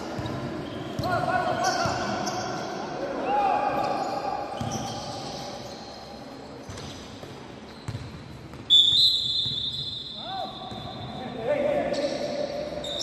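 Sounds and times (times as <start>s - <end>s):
basketball bouncing on gym floor: 6.6s - 8.7s.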